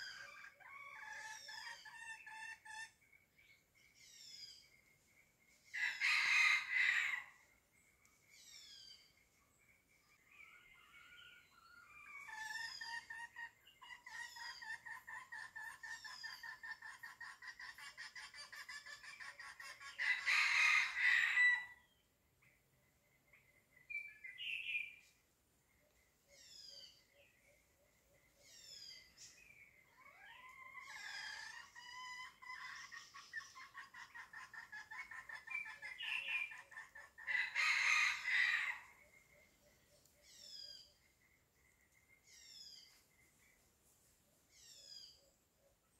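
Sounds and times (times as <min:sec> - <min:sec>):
junglefowl crowing: 0:05.8 - 0:07.4, 0:14.0 - 0:21.8, 0:29.9 - 0:39.0
hen clucking: 0:12.1 - 0:20.3, 0:29.9 - 0:38.9.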